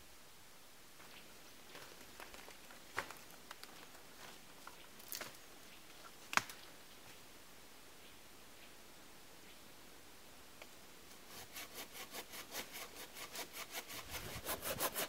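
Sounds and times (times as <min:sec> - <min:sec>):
footsteps in snow and brush: 0:01.0 - 0:06.1
twigs snapping underfoot: 0:04.7 - 0:05.4, 0:06.0 - 0:06.7.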